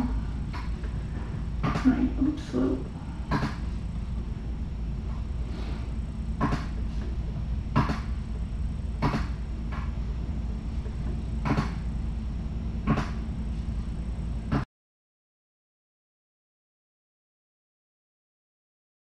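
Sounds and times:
steady low hum: 0.0s - 14.7s
sharp clicks or knocks: 1.6s - 1.9s, 3.3s - 3.6s, 6.4s - 6.8s, 7.7s - 8.2s, 9.0s - 10.0s, 11.4s - 11.8s, 12.8s - 13.2s.

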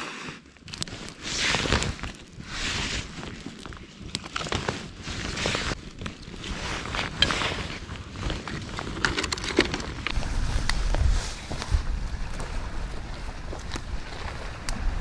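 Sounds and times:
campfire crackling: 0.0s - 15.0s
twigs snapping: 3.1s - 7.5s
wind on microphone: 10.1s - 15.0s.

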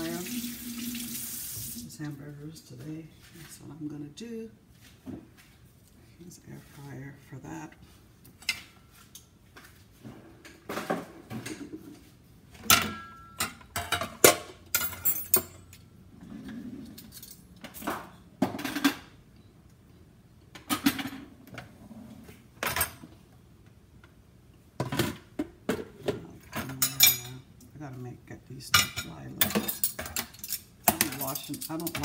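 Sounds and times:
dishes and utensils clattering: 10.1s - 15.8s, 24.8s - 27.5s, 28.7s - 32.0s.

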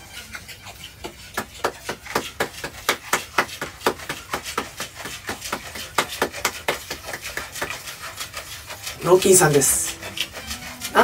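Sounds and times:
person clapping hands: 1.4s - 7.8s.

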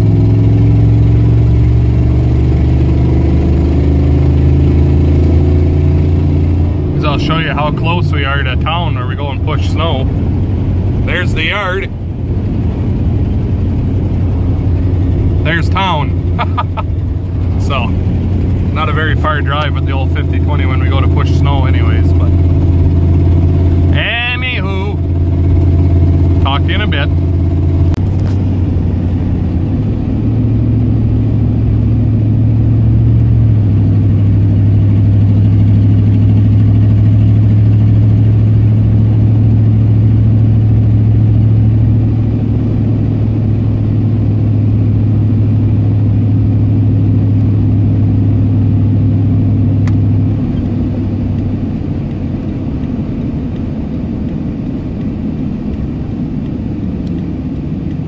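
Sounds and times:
truck engine and road noise: 0.0s - 58.0s.

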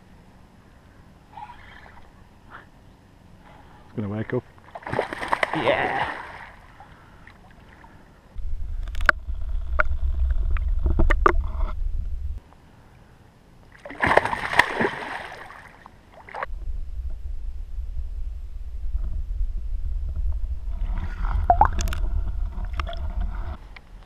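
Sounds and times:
water splash: 4.7s - 6.6s, 13.8s - 16.5s
muffled underwater rumble: 7.9s - 12.4s, 16.5s - 24.0s.

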